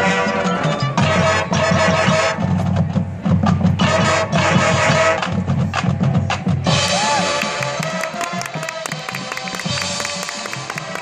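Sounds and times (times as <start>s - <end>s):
brass and woodwinds: 0.0s - 2.8s, 3.7s - 5.6s, 6.6s - 11.0s.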